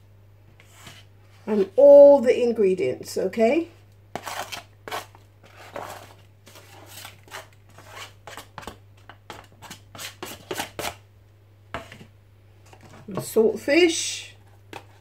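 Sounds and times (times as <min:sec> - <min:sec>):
spatula scraping a plate: 0:00.6 - 0:01.7, 0:04.1 - 0:11.0.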